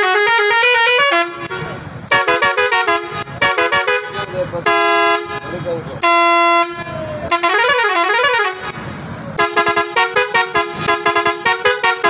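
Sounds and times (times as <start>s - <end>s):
musical truck horn: 0.0s - 12.0s.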